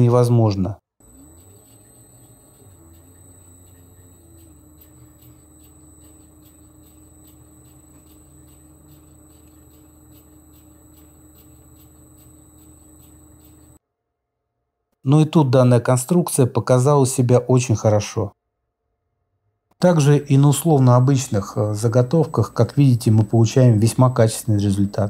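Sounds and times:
knurling tool ticking: 0:01.0 - 0:13.8
lathe motor hum: 0:01.0 - 0:13.8.

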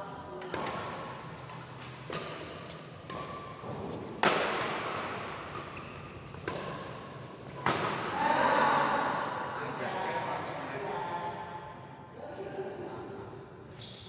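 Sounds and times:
rackets hitting shuttlecock: 0:00.4 - 0:08.2.

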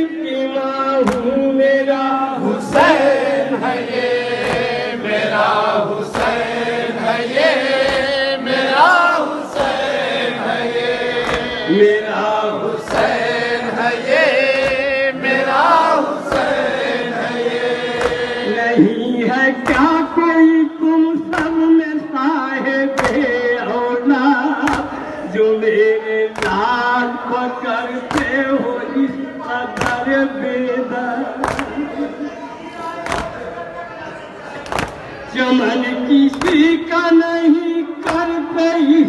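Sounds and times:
men chanting a lament: 0:00.0 - 0:39.0
hands slapping on chests: 0:01.0 - 0:01.2, 0:03.8 - 0:04.8, 0:06.0 - 0:06.6, 0:07.2 - 0:08.3, 0:09.5 - 0:11.6, 0:12.8 - 0:16.6, 0:17.2 - 0:18.4, 0:21.3 - 0:21.6, 0:23.0 - 0:23.3, 0:24.6 - 0:25.0, 0:26.4 - 0:26.6, 0:28.1 - 0:28.4, 0:29.8 - 0:30.1, 0:31.4 - 0:31.8, 0:33.0 - 0:33.4, 0:34.6 - 0:35.0, 0:36.3 - 0:36.7.

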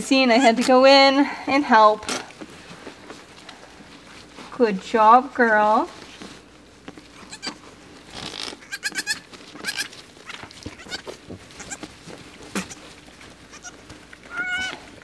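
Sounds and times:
goat kids bleating: 0:07.2 - 0:07.6, 0:08.5 - 0:11.9, 0:12.5 - 0:12.9, 0:13.5 - 0:14.9.

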